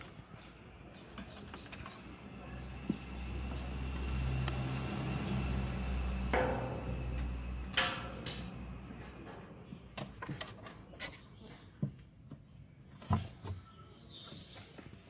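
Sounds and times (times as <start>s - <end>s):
low steady rumble: 2.1s - 10.2s.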